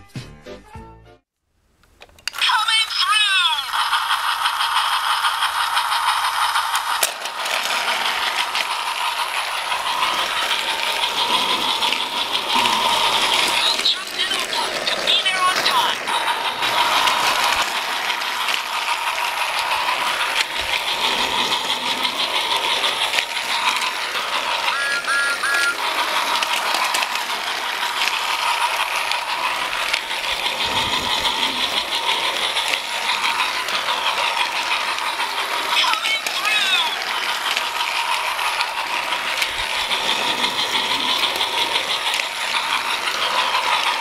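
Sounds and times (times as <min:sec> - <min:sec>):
toy train motor whine: 0:02.0 - 0:44.0
toy wheels rattling on plastic track: 0:02.0 - 0:44.0
short high tones: 0:24.7 - 0:25.8.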